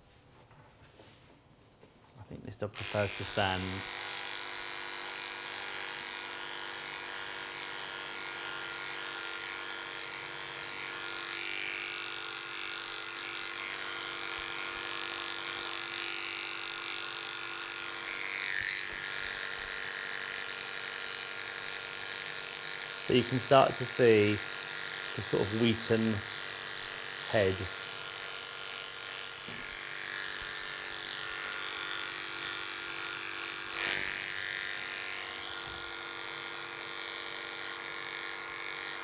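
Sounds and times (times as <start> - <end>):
electric clippers humming: 2.6 - 39.0.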